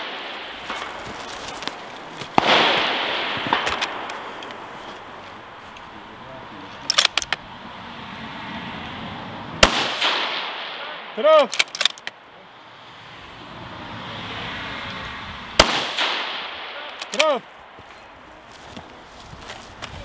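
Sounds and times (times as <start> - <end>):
rifle shots with rolling echo: 2.3 - 4.7, 9.6 - 12.0, 15.6 - 17.3
sharp clicks: 6.8 - 7.4, 11.5 - 12.2.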